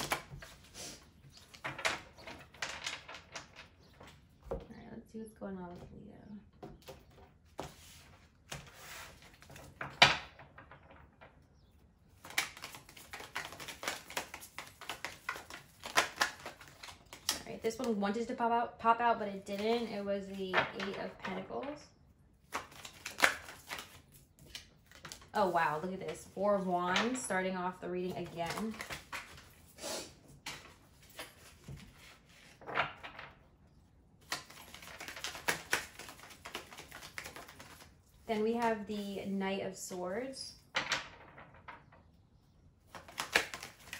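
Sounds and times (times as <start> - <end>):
cards slapping: 0.0 - 0.7, 12.2 - 18.0, 22.4 - 25.3, 28.2 - 29.6, 34.2 - 37.9, 42.9 - 43.9
cards sliding: 34.3 - 37.8.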